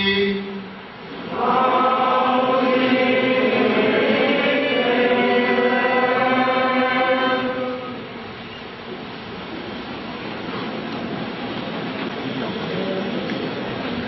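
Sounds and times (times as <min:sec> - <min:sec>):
congregation and choir chanting: 0:01.2 - 0:08.3.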